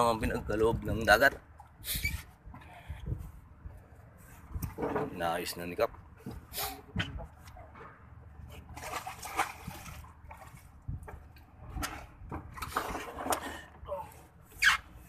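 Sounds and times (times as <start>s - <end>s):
fish splashing in water box: 8.5s - 13.7s.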